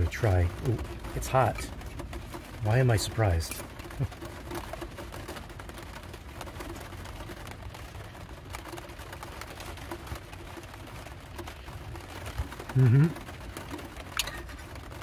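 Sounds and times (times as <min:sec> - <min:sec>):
rain pattering on a roof: 0:00.0 - 0:15.0.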